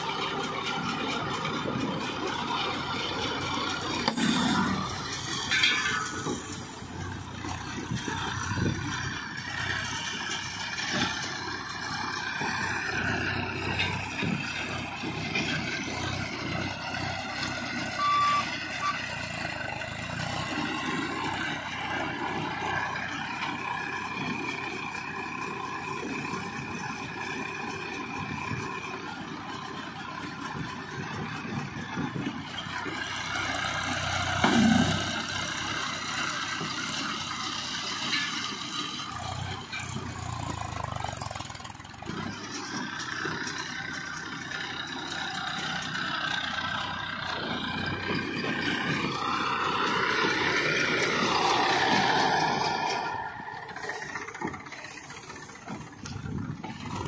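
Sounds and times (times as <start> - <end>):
tractor diesel engine running: 0.0 - 57.0
short beep: 17.9 - 19.0.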